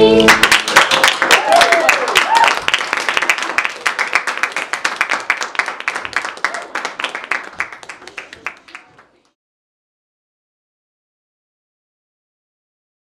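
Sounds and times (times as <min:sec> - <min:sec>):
crowd applauding: 0:00.0 - 0:09.4.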